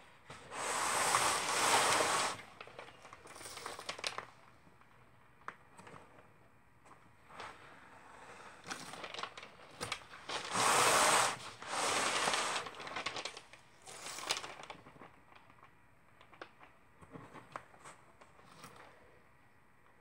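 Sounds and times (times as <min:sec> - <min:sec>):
tape unrolling: 0:00.5 - 0:02.9, 0:10.3 - 0:13.4.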